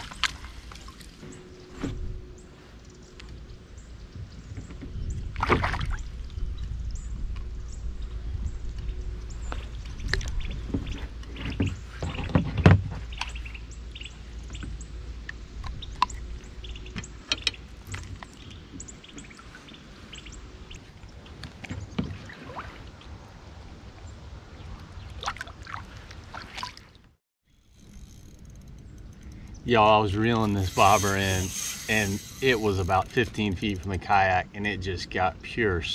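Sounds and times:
low steady rumble: 0.0 - 22.0, 27.5 - 35.9
clicks and knocks in kayak: 16.9 - 19.3.

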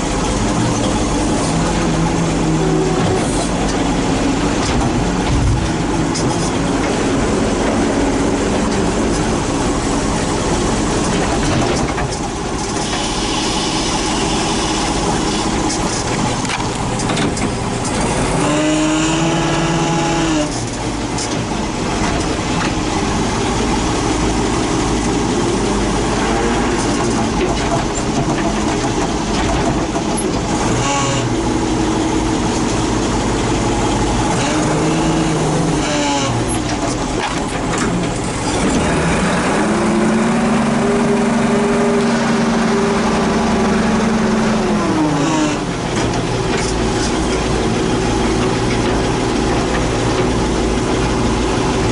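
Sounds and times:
tractor engine running: 0.0 - 51.9.

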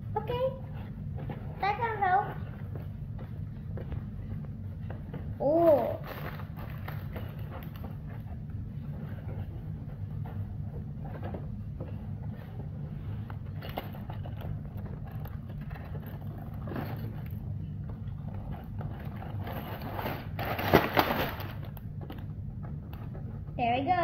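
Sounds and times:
steady low hum: 0.0 - 24.0
plastic bags crinkling and sliding: 18.9 - 21.8.

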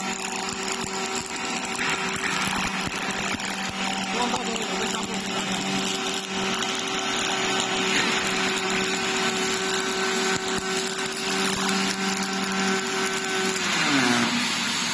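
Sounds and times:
welding arc crackling hiss: 0.0 - 14.9.

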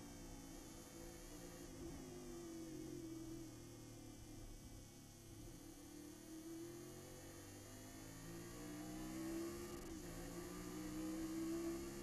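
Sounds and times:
race car engine drone: 8.2 - 12.0.

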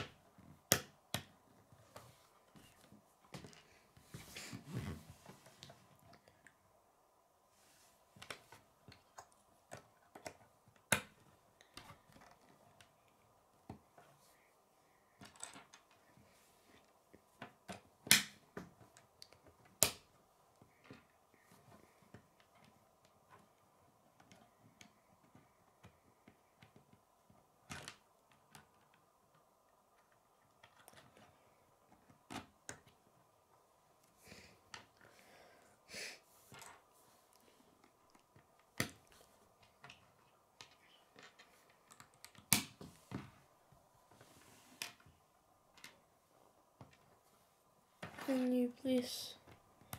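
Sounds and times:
plastic pieces clicking and tapping: 8.2 - 14.1, 15.2 - 16.1, 17.1 - 33.2, 37.8 - 42.9
plastic pieces clicking together: 37.8 - 42.8.

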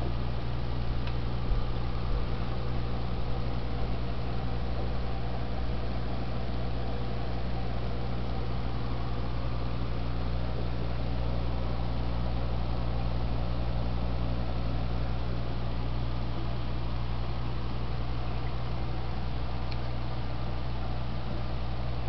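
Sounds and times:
aquarium air pump humming: 0.0 - 22.0.

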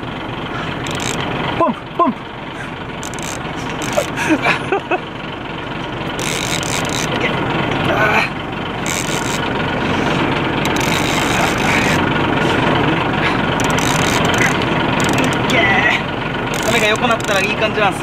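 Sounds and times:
boat engine idling: 0.0 - 18.0
wind: 0.0 - 18.0
fishing reel rasping: 0.6 - 1.2, 3.0 - 4.2, 6.2 - 7.3, 8.8 - 9.5, 10.6 - 12.0, 13.5 - 15.5, 16.5 - 17.6.

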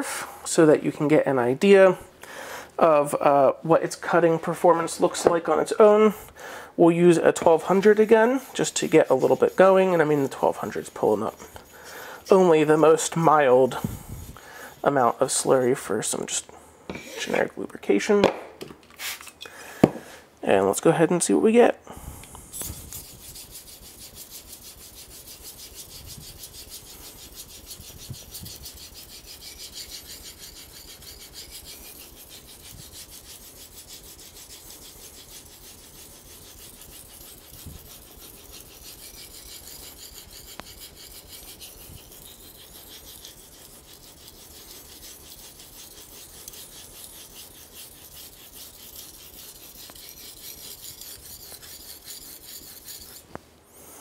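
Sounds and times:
knife scraping on whetstone: 7.3 - 16.1, 16.9 - 17.5, 22.5 - 53.3.

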